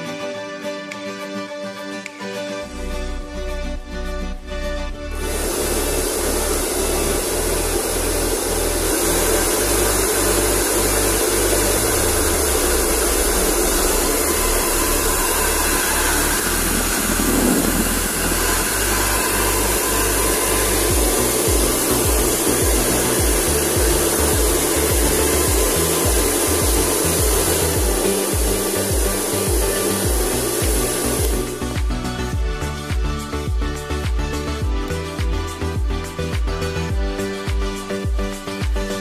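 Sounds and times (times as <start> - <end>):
air blast buffeting microphone: 5.1 - 32.6
hair dryer running: 5.1 - 39.0.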